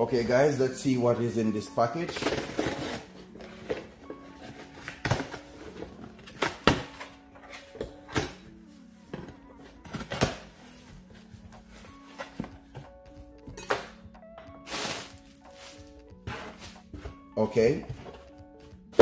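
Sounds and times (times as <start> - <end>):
cardboard rustling: 2.0 - 8.4, 9.0 - 12.9, 14.6 - 19.0.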